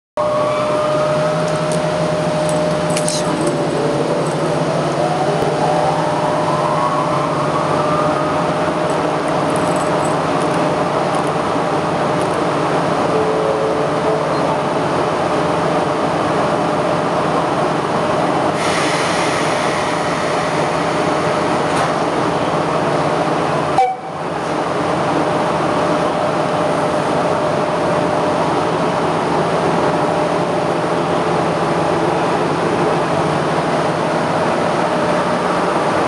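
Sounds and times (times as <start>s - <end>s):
rising whine: 0.2s - 11.0s
locomotive mechanical drone: 0.2s - 36.0s
hiss: 18.6s - 21.5s.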